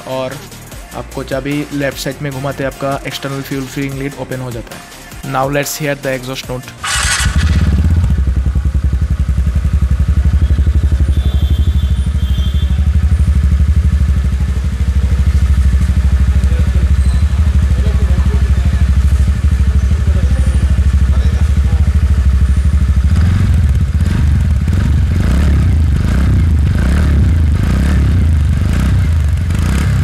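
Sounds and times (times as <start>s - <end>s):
scooter engine idling: 6.8s - 30.0s.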